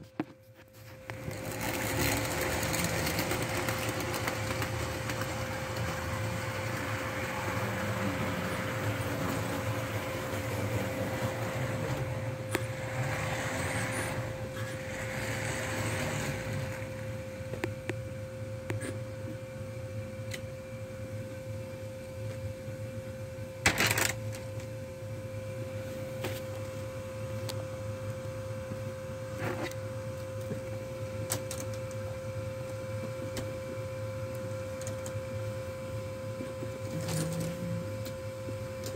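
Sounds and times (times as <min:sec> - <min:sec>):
steady hum: 0:00.0 - 0:38.9
model train clattering on track: 0:01.1 - 0:12.6.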